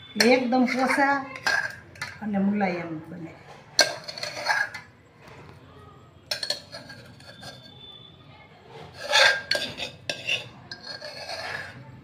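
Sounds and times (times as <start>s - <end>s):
spoon clinking against metal bowl: 0.1s - 2.4s, 3.8s - 4.9s, 6.2s - 8.0s, 8.9s - 11.8s
faint metallic ringing: 3.7s - 11.8s.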